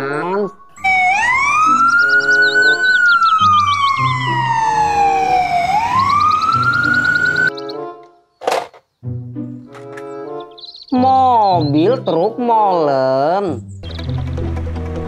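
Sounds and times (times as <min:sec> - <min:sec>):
fast warbling siren tone: 0:00.0 - 0:07.5
ambulance siren wailing: 0:00.0 - 0:07.6.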